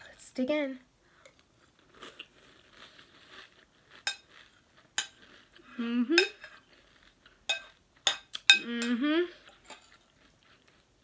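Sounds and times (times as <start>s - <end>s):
cereal crunching while chewed: 1.3s - 5.7s, 6.3s - 8.5s, 9.4s - 11.0s
person humming: 5.6s - 6.4s, 8.6s - 9.5s
metal spoon clinking on bowl: 7.5s - 10.0s.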